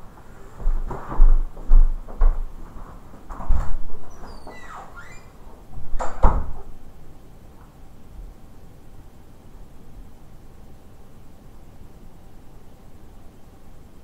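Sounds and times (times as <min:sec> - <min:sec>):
high sliding squeaks: 0:04.1 - 0:05.4.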